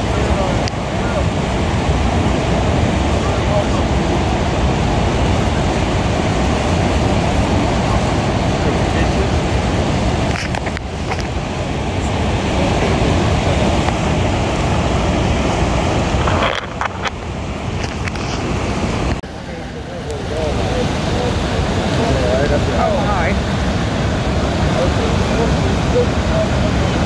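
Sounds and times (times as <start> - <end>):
wind on microphone: 0.0 - 19.2
waterfall roaring: 0.0 - 27.0.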